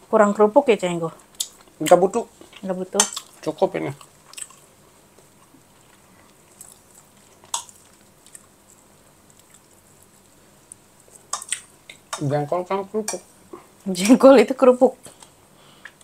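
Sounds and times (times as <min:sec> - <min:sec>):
faint chewing: 0:01.1 - 0:12.3, 0:15.0 - 0:16.0.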